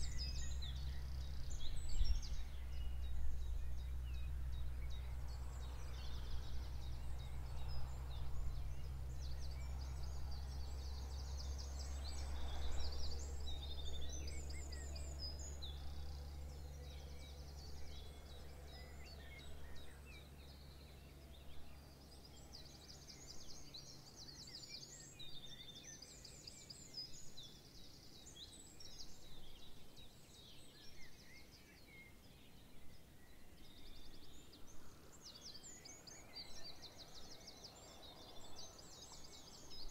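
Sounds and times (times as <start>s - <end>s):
low steady rumble: 0.0s - 24.5s
songbirds chirping and singing: 0.0s - 39.9s.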